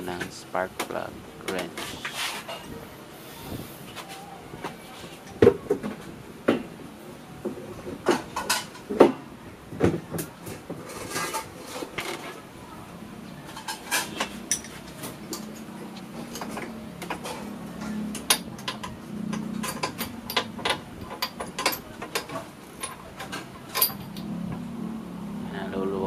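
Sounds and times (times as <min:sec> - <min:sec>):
wrench clinking on metal: 0:17.8 - 0:24.2.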